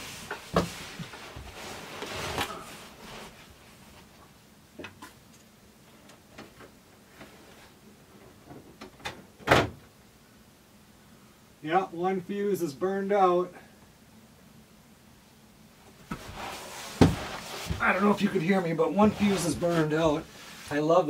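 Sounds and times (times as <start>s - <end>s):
clothes rustling: 0.0s - 4.3s, 15.9s - 21.0s.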